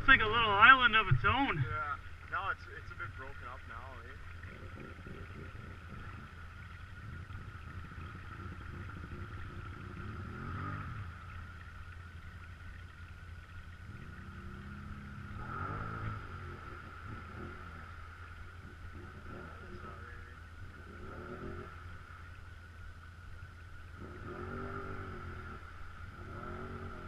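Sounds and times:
atv engine idling and revving: 0.0 - 27.0.

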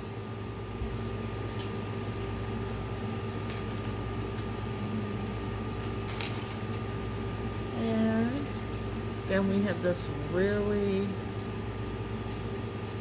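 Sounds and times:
low background hum: 0.0 - 13.0
metal chain necklace clinking: 1.5 - 2.5.

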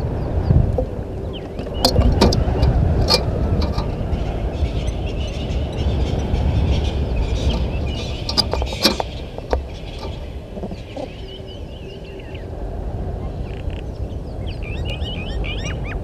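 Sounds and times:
handling noise on microphone: 0.6 - 4.4, 7.3 - 11.2
sharp taps and scratches: 7.5 - 10.8.

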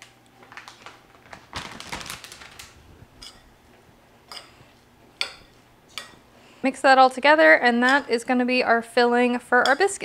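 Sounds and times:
plastic bag crinkling: 0.4 - 3.0.

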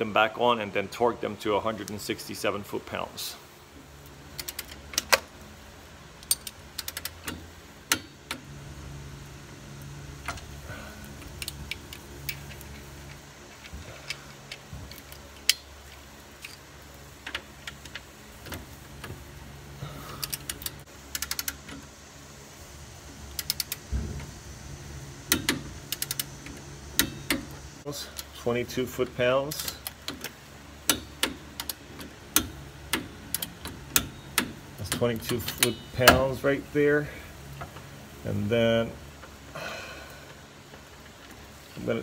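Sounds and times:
steady low hum: 0.0 - 42.0
ratcheting wrench clicks: 4.3 - 5.3, 6.2 - 8.4, 11.2 - 16.6, 20.2 - 21.8, 23.3 - 23.8, 25.3 - 27.5, 29.5 - 36.2
tool clinking against bolts: 33.4 - 36.4.

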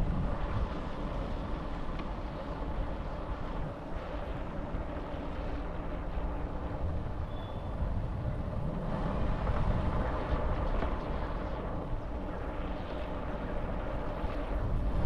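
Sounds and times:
road and wind rush: 0.0 - 15.0.

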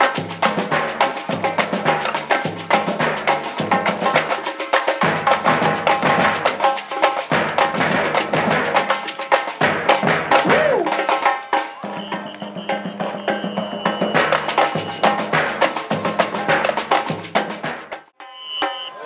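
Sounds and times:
samba percussion band: 0.0 - 19.0
deep bass drum beats: 9.6 - 11.1.

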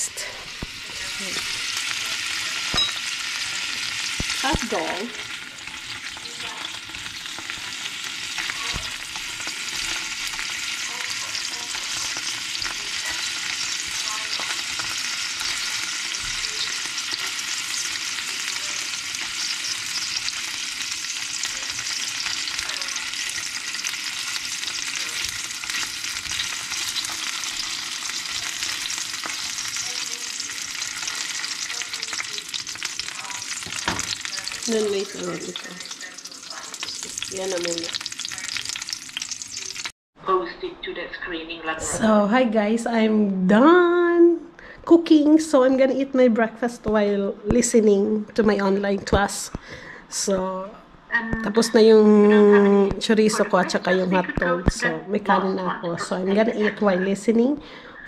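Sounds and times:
hot dogs sizzling in oil: 0.0 - 40.0
tongs turning food: 5.2 - 39.9.

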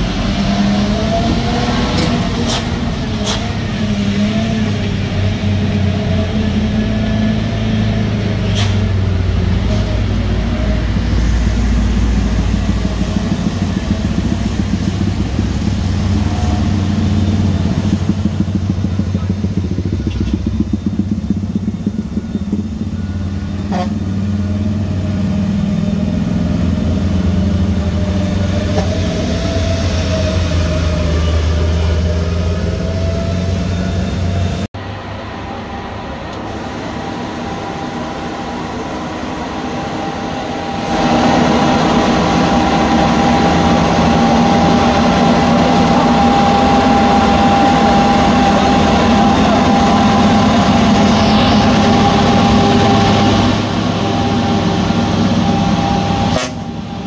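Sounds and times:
truck engine whine: 0.0 - 57.0
truck engines labouring uphill: 0.0 - 57.0
motorcycles passing: 9.0 - 34.6, 40.3 - 57.0.

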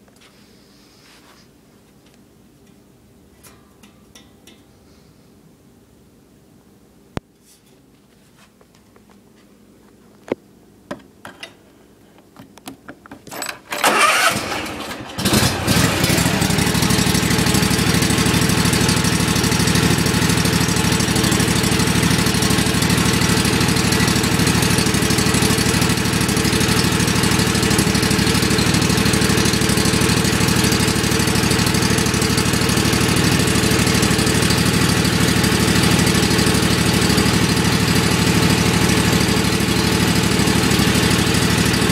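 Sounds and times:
mower starter cranking: 13.2 - 41.9
mower engine running: 13.7 - 41.9.

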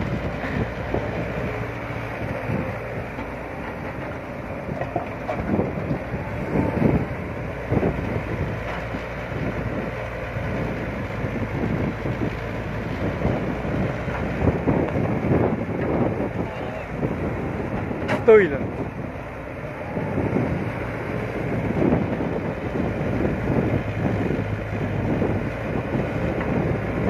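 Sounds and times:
excavator diesel engine: 0.0 - 27.0.

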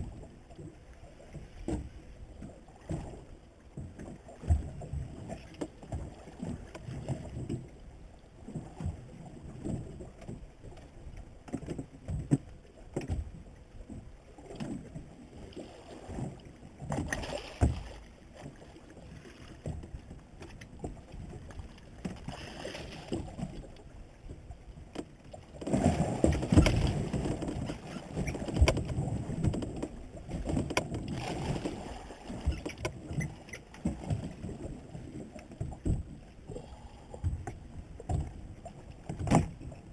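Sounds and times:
water lapping against boat hull: 0.0 - 39.9.

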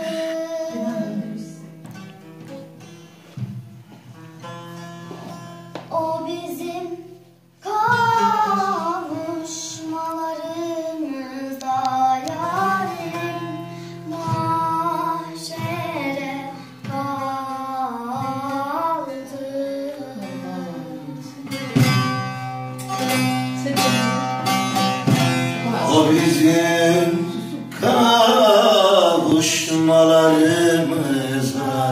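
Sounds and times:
girl singing: 0.0 - 1.7, 5.9 - 22.1
long-necked lute strumming: 0.0 - 31.9.

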